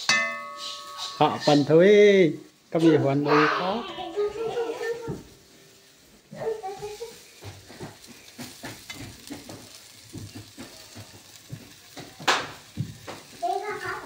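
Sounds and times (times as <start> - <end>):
spoon clanking on pot: 0.0 - 1.5, 7.9 - 12.1
faint sizzle: 0.0 - 14.0
spoon scraping a metal pot: 0.1 - 1.7.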